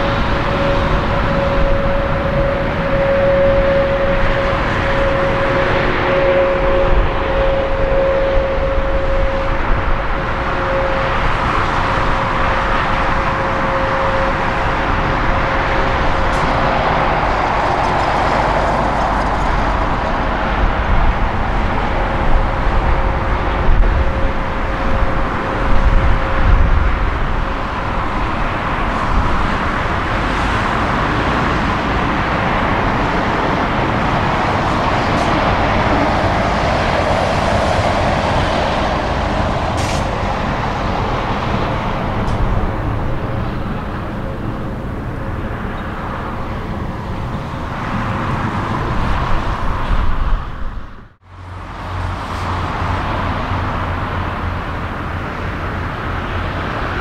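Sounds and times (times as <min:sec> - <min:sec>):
heavy low rumble: 0:00.0 - 0:57.0
jet engines drone: 0:00.0 - 0:57.0
thin jet engine whine: 0:00.0 - 0:57.0.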